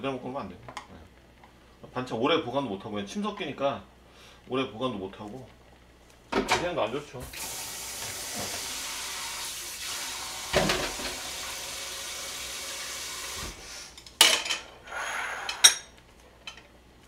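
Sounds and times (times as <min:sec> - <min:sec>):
tap running into sink: 0:08.0 - 0:08.8.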